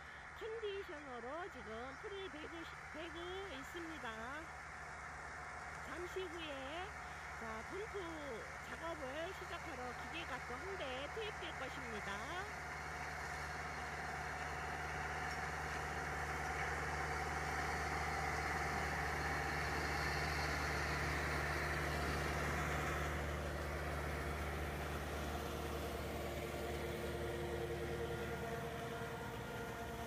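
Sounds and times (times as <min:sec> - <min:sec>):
tractor diesel engine running: 0:00.0 - 0:30.0
mower cutter whirring: 0:12.5 - 0:30.0.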